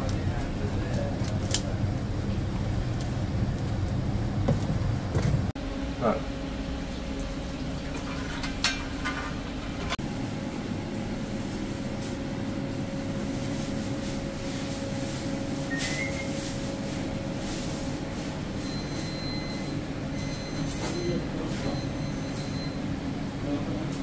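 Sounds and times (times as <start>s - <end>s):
kitchen machinery humming: 0.0s - 24.0s.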